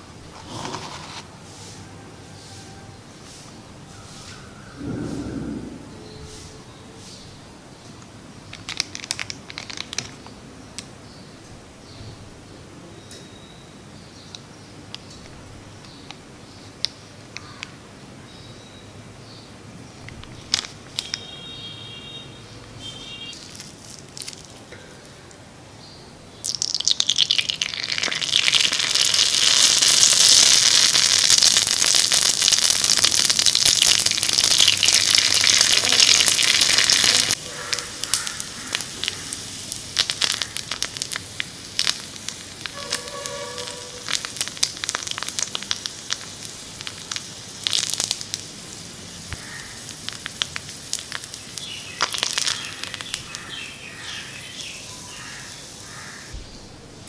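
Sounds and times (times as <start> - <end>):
crackling and popping: 7.9 - 11.0, 20.0 - 21.6, 22.6 - 25.4, 26.4 - 57.0
hot oil sizzling: 26.3 - 56.9.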